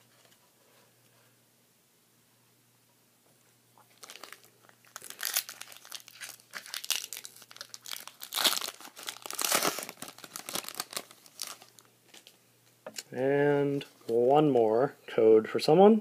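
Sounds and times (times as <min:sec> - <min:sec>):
foil wrapper crinkling and tearing: 0:03.9 - 0:12.3.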